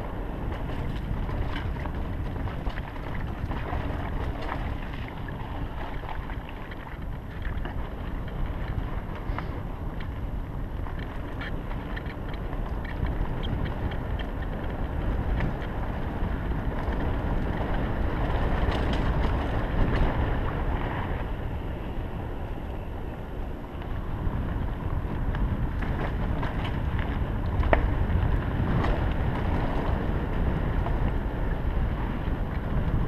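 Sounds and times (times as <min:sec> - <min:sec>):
tyres rumbling on dirt trail: 0:00.0 - 0:33.0
wind buffeting microphone: 0:00.0 - 0:33.0
sharp clicks from bike: 0:06.0 - 0:10.2, 0:10.8 - 0:21.2, 0:23.8 - 0:33.0.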